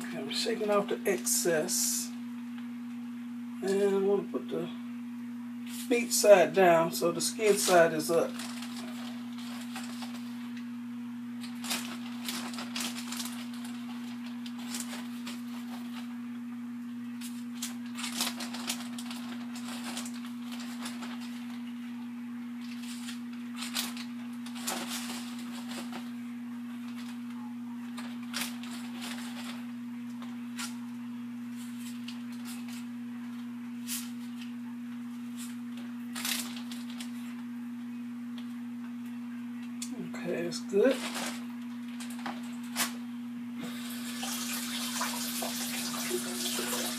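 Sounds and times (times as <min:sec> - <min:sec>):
low electrical hum: 0:00.0 - 0:46.9
plastic bag crinkling: 0:07.4 - 0:10.6, 0:11.4 - 0:16.2, 0:17.2 - 0:21.8, 0:22.6 - 0:27.3, 0:27.9 - 0:30.8, 0:36.1 - 0:37.4, 0:40.8 - 0:43.0, 0:43.9 - 0:46.9.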